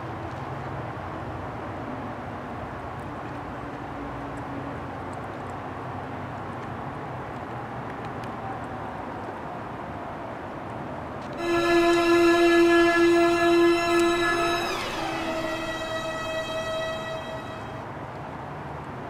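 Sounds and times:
faint held tone: 11.4 - 17.8.

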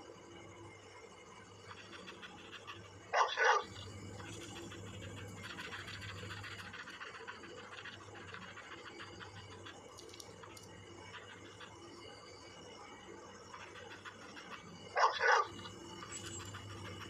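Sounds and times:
dog barking: 1.8 - 7.0, 13.9 - 15.7.

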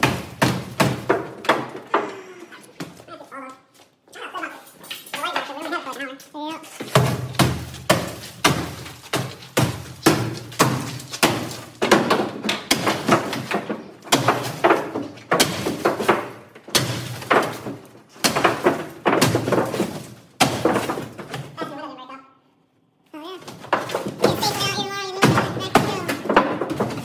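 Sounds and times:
metal bar striking car body: 6.9 - 21.1.

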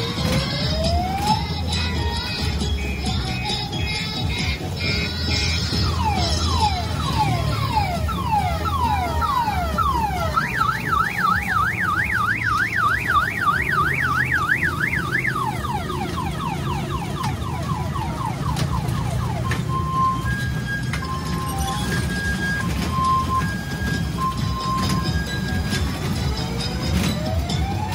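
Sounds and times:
electronic alarm siren: 5.6 - 27.9.

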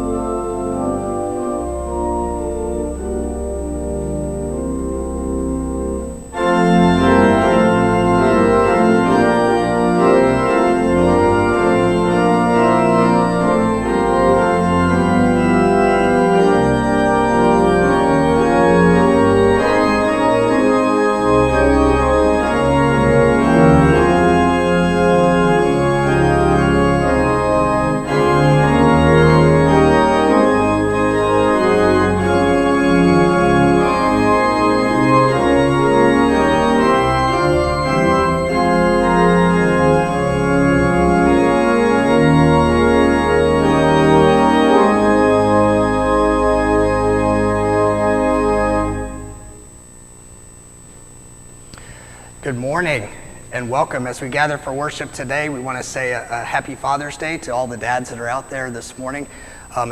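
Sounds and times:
pipe organ playing chords: 0.0 - 59.9.

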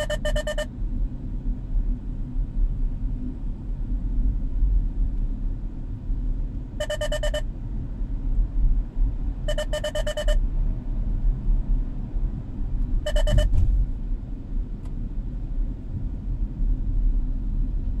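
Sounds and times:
rapid electronic beeps: 0.0 - 0.7, 6.8 - 7.4, 9.5 - 10.4, 13.1 - 13.5
road and engine rumble: 0.0 - 18.0.

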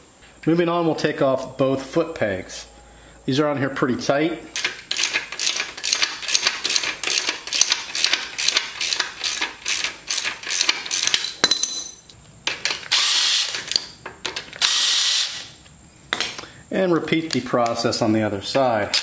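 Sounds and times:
ratchet wrench clicking: 4.6 - 11.4.

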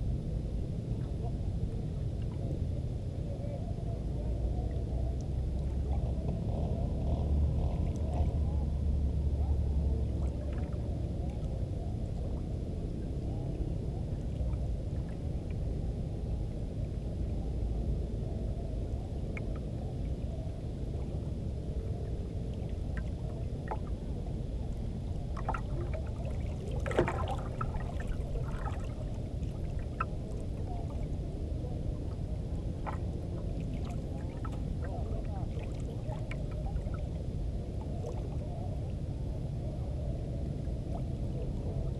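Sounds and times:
wind and sea rumble: 0.0 - 41.9.

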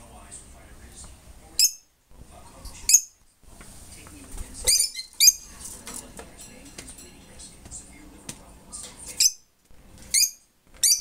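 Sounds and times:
lovebirds chirping: 0.8 - 3.3, 4.1 - 11.0.

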